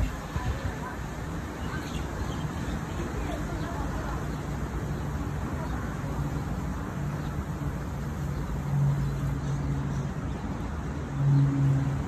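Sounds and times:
low hum of street traffic: 0.0s - 12.0s.

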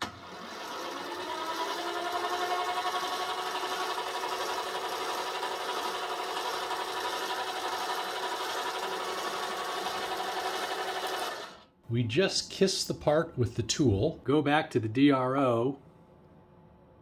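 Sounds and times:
metal lathe motor whine: 0.0s - 11.6s.

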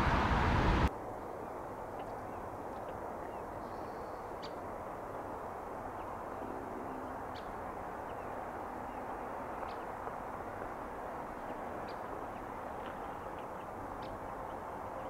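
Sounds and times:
outdoor background rumble: 0.0s - 1.0s.

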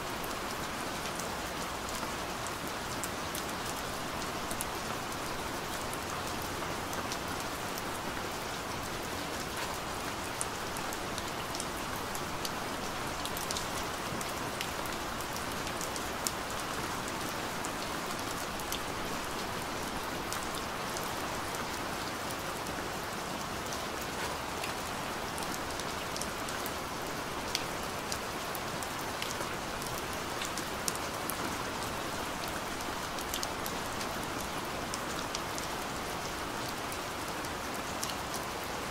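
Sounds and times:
steady hiss with small ticks: 0.0s - 38.9s.

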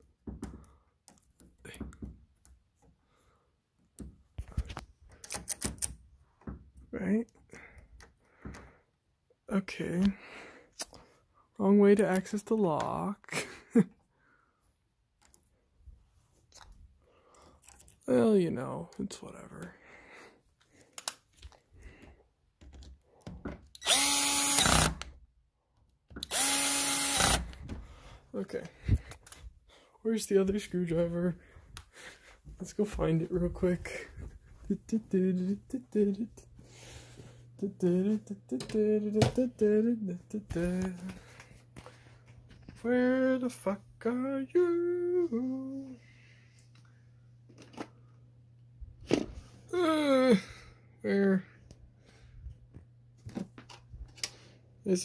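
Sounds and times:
cordless drill whining: 23.7s - 25.2s, 26.1s - 27.8s.

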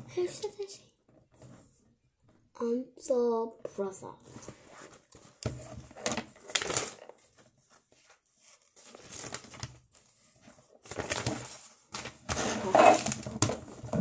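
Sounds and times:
paper rustling and crinkling: 4.2s - 14.0s.

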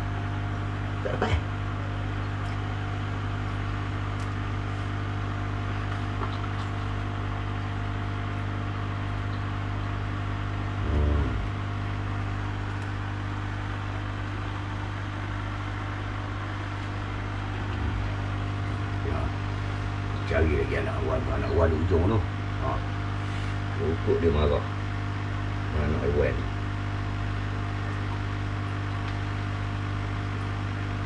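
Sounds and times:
electric hum with buzz: 0.0s - 31.0s
short low sound: 10.8s - 11.5s.

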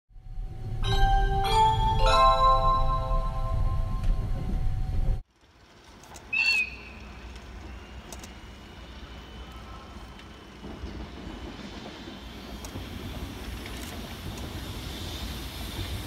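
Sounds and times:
open-air background: 0.1s - 16.0s
chime-like intro jingle: 0.8s - 4.5s.

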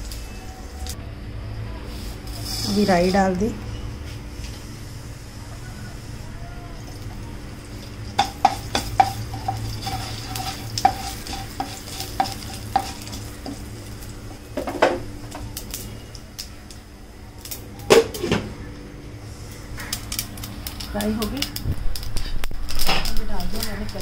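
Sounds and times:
seeds sizzling in hot oil: 1.8s - 17.9s, 19.2s - 24.0s
spatula clicking and scraping pan: 8.2s - 13.7s.

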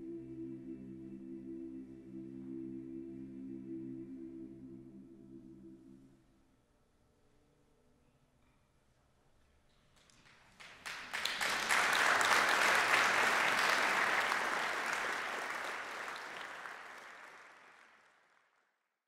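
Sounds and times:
audience applauding: 10.1s - 18.4s.

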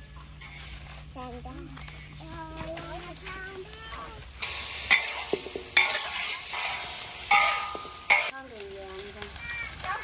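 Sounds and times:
metal spatula scraping a wok: 0.3s - 1.2s, 4.4s - 8.4s
meat sizzling in hot oil: 3.2s - 10.0s.

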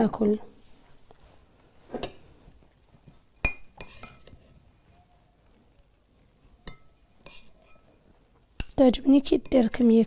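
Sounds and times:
metal spoon clinking on glass: 6.6s - 8.0s.

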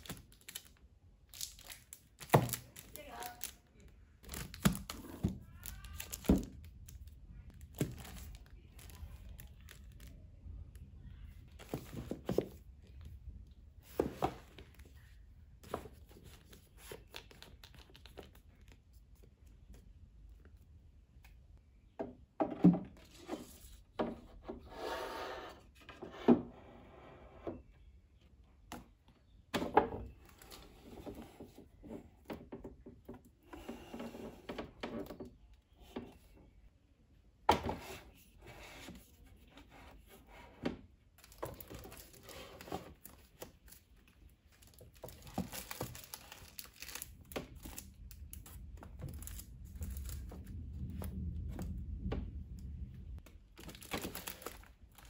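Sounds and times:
book covers rustling: 4.2s - 10.2s, 11.3s - 19.9s, 41.2s - 51.7s, 53.2s - 55.0s.

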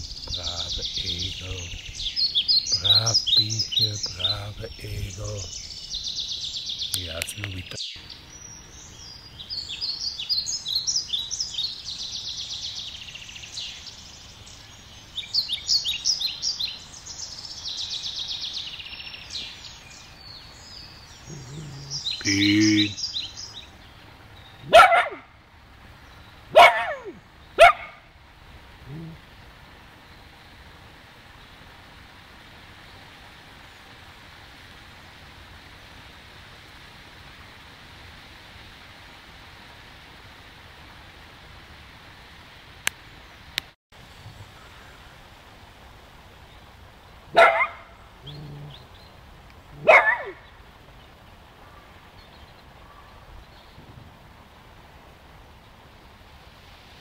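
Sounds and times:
small dog barking: 24.6s - 25.3s, 26.5s - 28.1s, 47.3s - 48.7s, 49.8s - 50.5s.

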